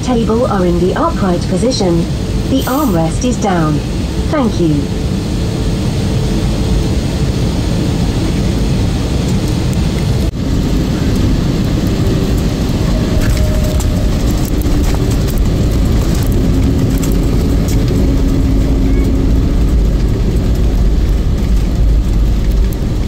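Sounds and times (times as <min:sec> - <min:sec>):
jet engines and airflow rumble: 0:00.0 - 0:23.0.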